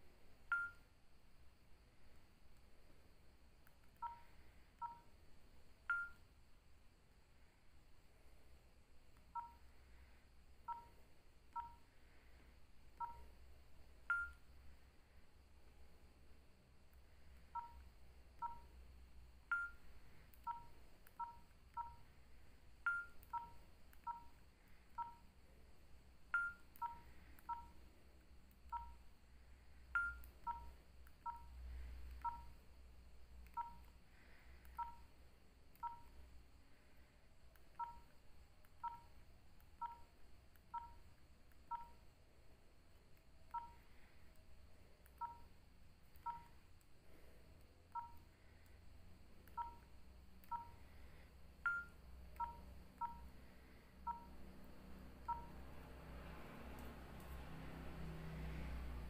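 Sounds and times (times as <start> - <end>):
phone keypad beeps: 0.4 - 0.9, 3.9 - 5.2, 5.8 - 6.4, 9.2 - 9.7, 10.6 - 11.9, 12.9 - 13.4, 14.0 - 14.6, 17.4 - 18.8, 19.4 - 22.2, 22.8 - 25.3, 26.2 - 27.8, 28.5 - 29.1, 30.0 - 32.6, 33.4 - 36.2, 37.6 - 42.0, 43.4 - 44.1, 45.1 - 46.6, 47.9 - 48.3, 49.4 - 53.4, 54.0 - 54.5, 55.2 - 55.6
higher beep with sharp click: 0.5 - 0.9, 5.9 - 6.2, 14.1 - 14.4, 19.5 - 19.8, 30.0 - 30.7.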